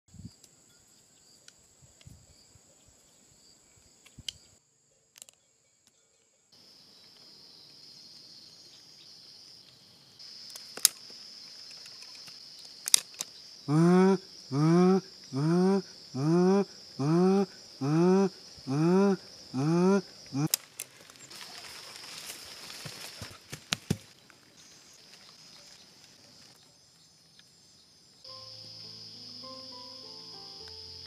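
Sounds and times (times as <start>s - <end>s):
high-pitched insect chorus: 0.1s - 23.5s, 24.4s - 31.0s
loud pitched call: 13.7s - 20.5s.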